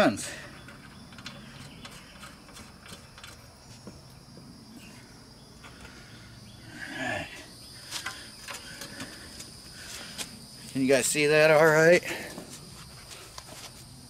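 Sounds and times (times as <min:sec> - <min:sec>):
insects chirring: 0:00.0 - 0:14.0
rustle of work gloves: 0:12.2 - 0:14.0.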